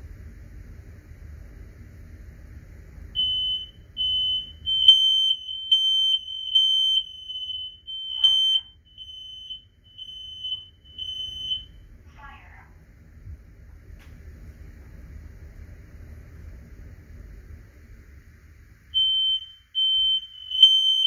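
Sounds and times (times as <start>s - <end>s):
smoke alarm beeping: 3.2s - 11.8s, 18.9s - 21.0s.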